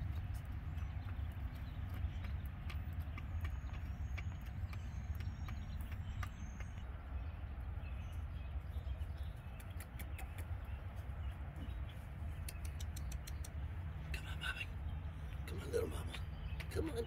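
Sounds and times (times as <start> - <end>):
hens pecking clicks: 0.0 - 17.0
steady low rumble: 0.0 - 17.0.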